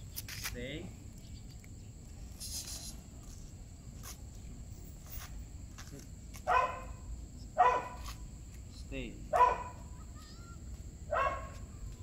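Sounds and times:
dog barking: 6.5s - 7.0s, 7.6s - 8.1s, 9.3s - 9.9s, 11.1s - 11.6s.

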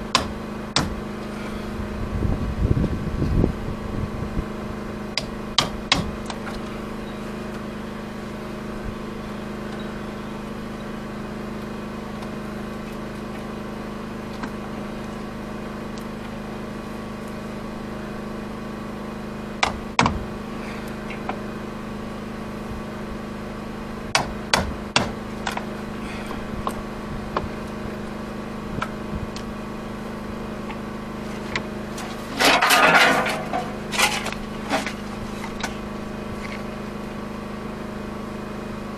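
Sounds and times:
steady low hum: 0.0s - 38.9s
hammer striking steel punch: 5.2s - 6.2s, 24.1s - 25.2s.

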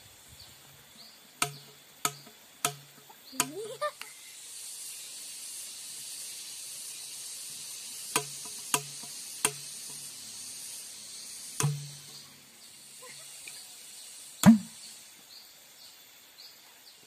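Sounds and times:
high insect buzz: 0.0s - 16.5s
low metallic ring from tube: 11.6s - 12.2s.

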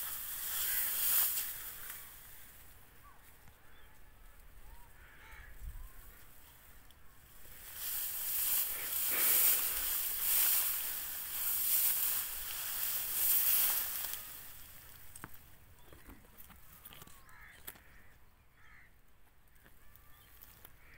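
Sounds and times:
loud airy hiss: 0.0s - 2.4s, 7.4s - 15.0s.

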